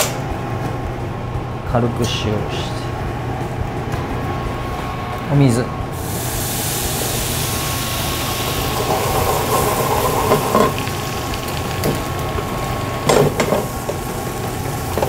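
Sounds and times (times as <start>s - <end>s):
water sizzling in hot pan: 6.0s - 15.0s
pan knocking on grate: 8.8s - 10.8s, 13.0s - 14.2s.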